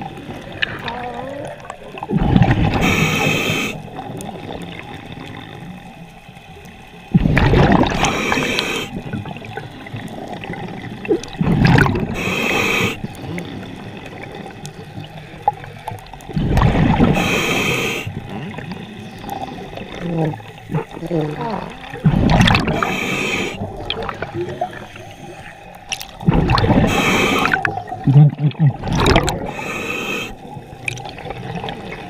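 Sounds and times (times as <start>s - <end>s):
exhaled bubbles rushing: 0.0s - 5.8s, 7.1s - 17.4s, 18.0s - 29.8s, 30.4s - 32.0s
quiet bubbling and gurgling: 0.0s - 32.0s
regulator inhale hiss: 2.7s - 3.9s, 7.9s - 9.1s, 12.0s - 13.2s, 17.0s - 18.3s, 22.7s - 23.7s, 26.8s - 27.7s, 29.4s - 30.6s.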